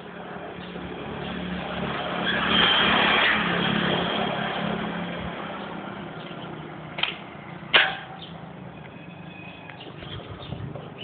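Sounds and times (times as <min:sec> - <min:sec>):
vehicle driving past: 0:00.8 - 0:07.6.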